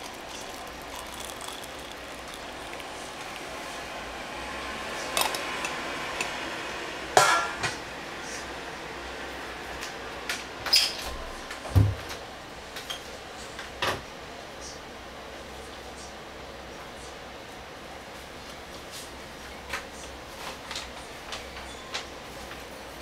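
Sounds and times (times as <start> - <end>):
metal plate clinking on ceramic mug: 5.2 - 6.3.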